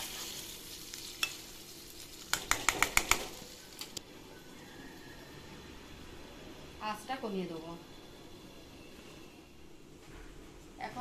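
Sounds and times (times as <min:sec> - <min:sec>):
curry sizzling: 0:00.0 - 0:08.8.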